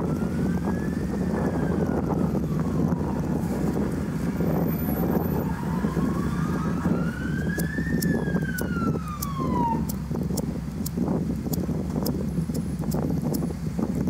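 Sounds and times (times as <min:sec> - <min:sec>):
emergency vehicle siren wailing: 0:00.0 - 0:10.0.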